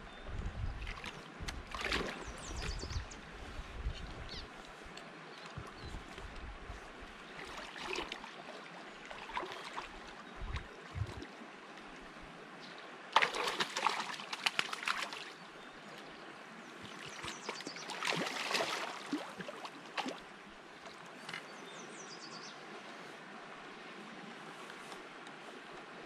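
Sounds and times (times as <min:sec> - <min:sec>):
stream trickling: 0:00.1 - 0:26.0
splashing in shallow water: 0:00.8 - 0:03.0, 0:07.2 - 0:11.4, 0:13.1 - 0:16.1, 0:16.7 - 0:21.6.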